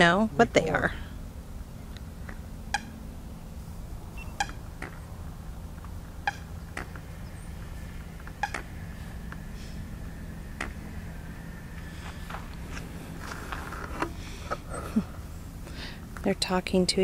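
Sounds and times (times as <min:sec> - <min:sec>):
steady low hum: 0:00.0 - 0:17.0
water birds beeping calls: 0:03.8 - 0:05.2, 0:06.0 - 0:12.1.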